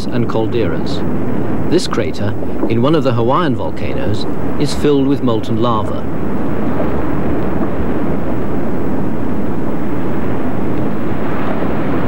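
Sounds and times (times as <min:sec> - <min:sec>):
lava spattering and rushing: 0:04.3 - 0:12.0.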